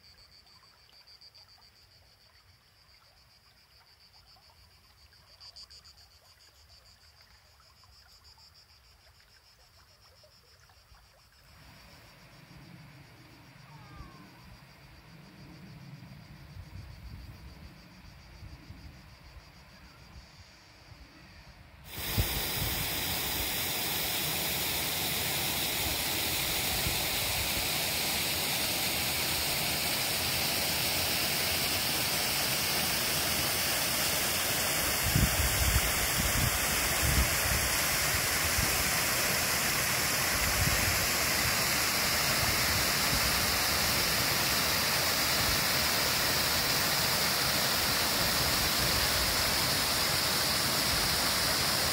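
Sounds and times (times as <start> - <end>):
rushing water: 21.9 - 51.9.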